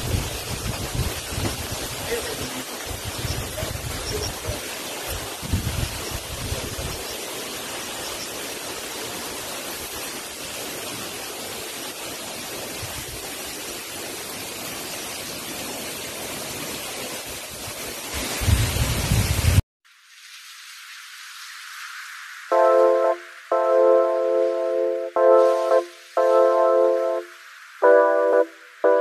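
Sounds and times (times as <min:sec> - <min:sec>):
wind buffeting microphone: 0:00.0 - 0:07.1, 0:18.2 - 0:19.6
rushing outdoor noise: 0:00.0 - 0:29.0.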